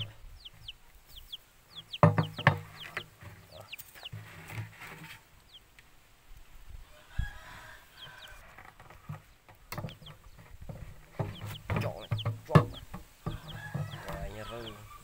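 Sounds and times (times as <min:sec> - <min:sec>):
chickens clucking: 0:00.0 - 0:15.0
plastic jug knocking: 0:02.0 - 0:02.7, 0:10.7 - 0:14.1.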